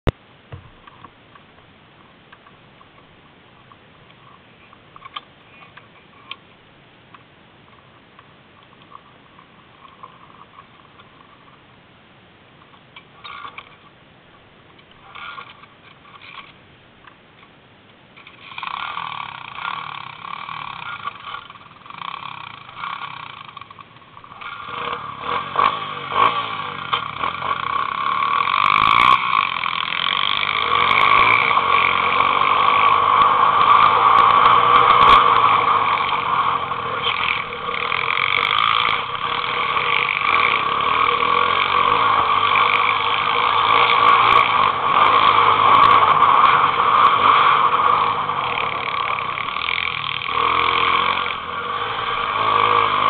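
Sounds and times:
motorbike engine running: 18.4s - 53.0s.

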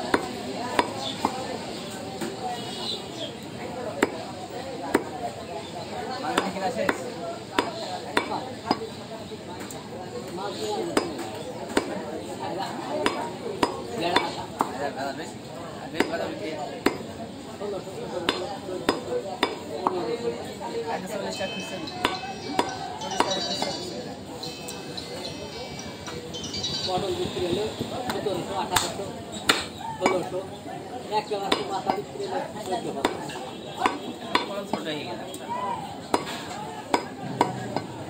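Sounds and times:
cleaver chopping meat on wood: 0.0s - 1.4s, 3.9s - 4.3s, 4.9s - 5.2s, 6.3s - 8.9s, 10.9s - 12.0s, 13.0s - 14.8s, 15.9s - 17.2s, 18.2s - 20.0s, 22.0s - 23.4s, 28.8s - 30.3s, 31.4s - 32.1s, 33.0s - 35.0s, 36.1s - 37.9s.

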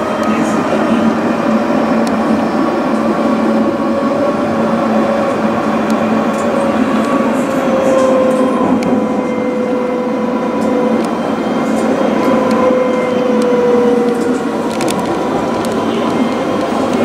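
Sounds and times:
tram motor whine: 0.0s - 17.0s
tram wheels rumbling on rail: 0.0s - 17.0s.

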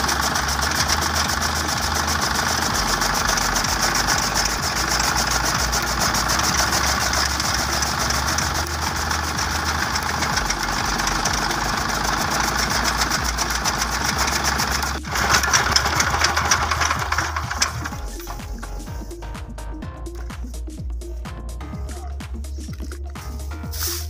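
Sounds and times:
diesel engine running: 0.0s - 20.3s.

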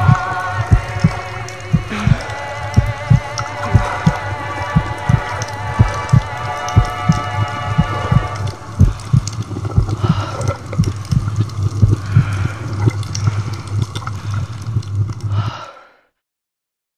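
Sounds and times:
low steady hum: 0.0s - 15.7s.

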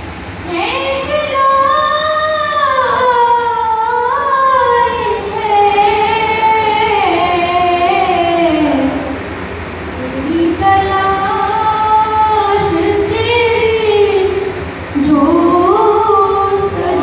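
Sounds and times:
boy singing devotional song: 0.4s - 9.2s, 10.0s - 17.0s.

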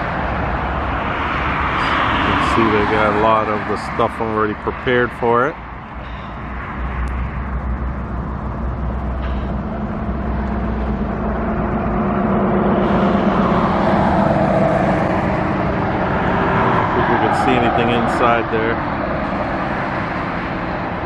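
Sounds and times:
vehicle engine rumble: 0.0s - 21.0s.

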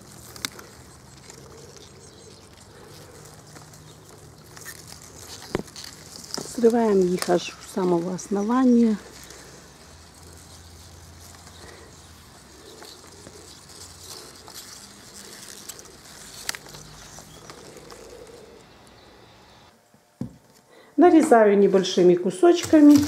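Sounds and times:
bird cooing faintly: 11.3s - 19.7s.

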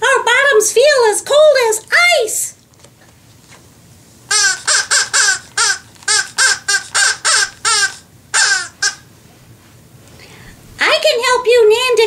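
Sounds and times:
parrot squawks: 4.3s - 9.1s.

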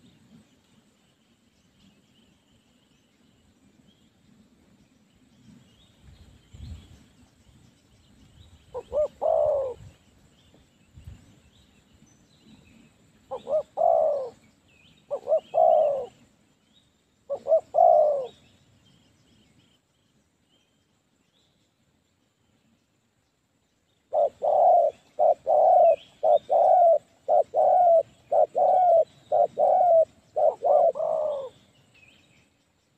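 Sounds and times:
doves cooing: 8.8s - 9.9s, 13.3s - 14.4s, 15.1s - 16.2s, 17.3s - 18.4s, 24.1s - 31.6s.

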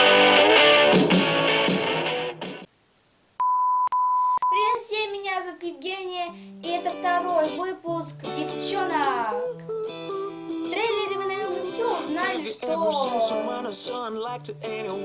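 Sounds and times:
backing music: 0.0s - 2.7s, 6.5s - 15.0s
guitar band music: 0.0s - 2.7s, 6.0s - 15.0s
steady high beep: 3.4s - 4.6s
girl singing: 5.9s - 9.7s, 10.5s - 14.0s.

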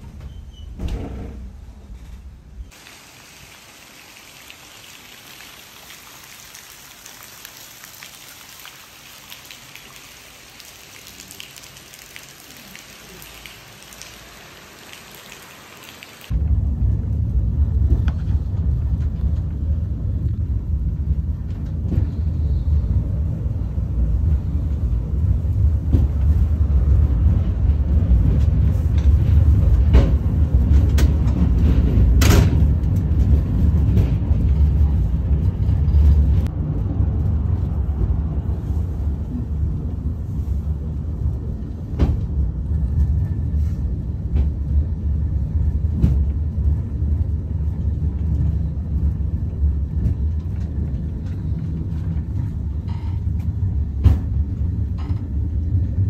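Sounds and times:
faint steady hiss: 2.7s - 16.3s
funicular car rumbling on rails: 16.3s - 56.0s.

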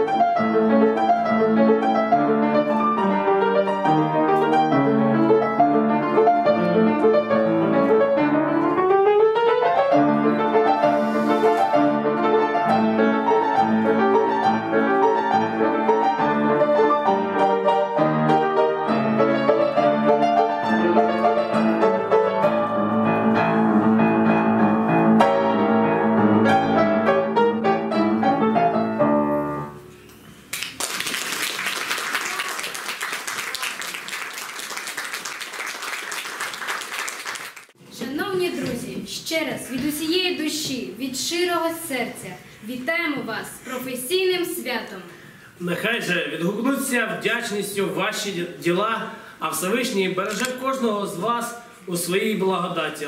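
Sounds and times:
piano music: 0.0s - 30.1s
audience applause: 30.5s - 37.8s.

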